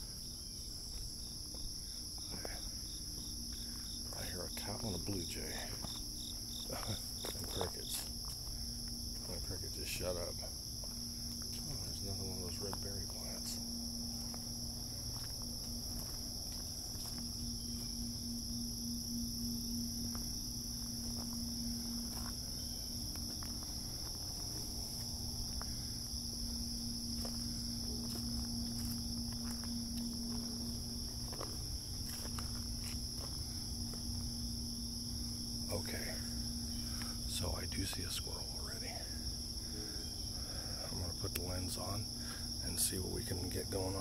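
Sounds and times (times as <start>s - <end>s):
crickets chirping: 0.0s - 44.0s
footsteps on gravel and leaves: 6.7s - 18.1s, 19.9s - 34.5s.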